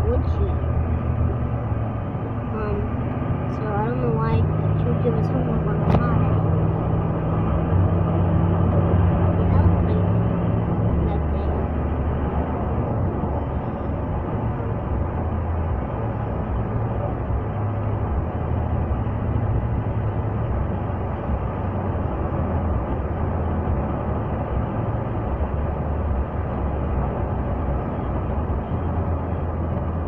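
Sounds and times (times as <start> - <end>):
car cabin road and engine noise: 0.0 - 30.0.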